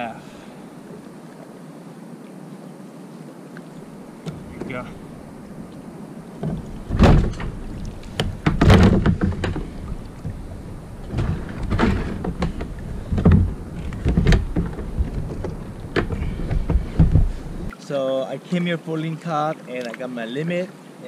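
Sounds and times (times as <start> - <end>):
thumps on plastic kayak: 4.2 - 5.1, 6.4 - 17.7.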